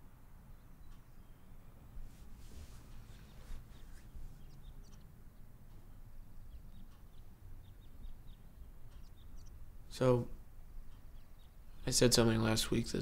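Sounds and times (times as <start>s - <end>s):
soft rustles: 2.0s - 4.6s.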